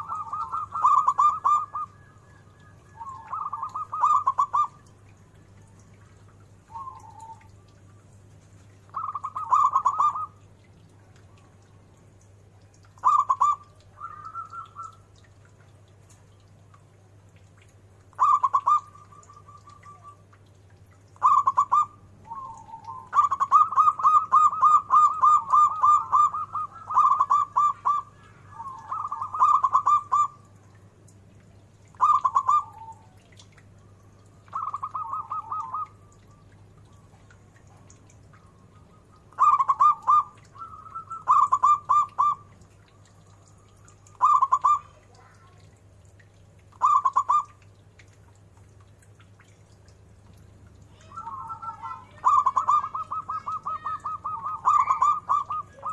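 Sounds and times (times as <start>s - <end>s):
dove cooing in staccato notes: 0.0s - 2.1s, 2.9s - 4.8s, 8.9s - 10.4s, 13.0s - 15.1s, 18.1s - 20.2s, 21.2s - 30.4s, 31.9s - 33.0s, 34.5s - 36.0s, 38.4s - 45.3s, 46.8s - 47.5s, 51.1s - 55.9s.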